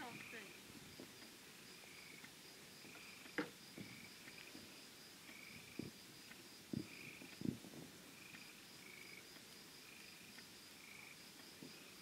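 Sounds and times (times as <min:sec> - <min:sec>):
high pulsing insect trill: 0:00.0 - 0:12.0
insect chirps: 0:00.0 - 0:12.0.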